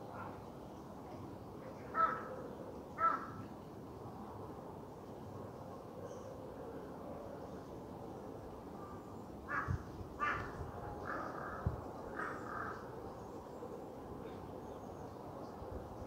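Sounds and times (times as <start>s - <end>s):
crow cawing: 2.0s - 2.3s, 3.0s - 3.4s, 9.5s - 12.8s.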